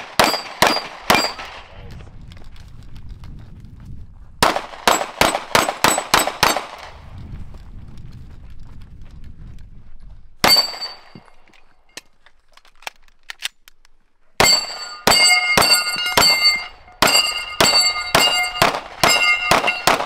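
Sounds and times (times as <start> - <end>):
pistol shots: 0.0 - 1.7, 4.4 - 6.9, 10.4 - 11.2, 14.4 - 20.0
steel plate ringing: 14.4 - 20.0.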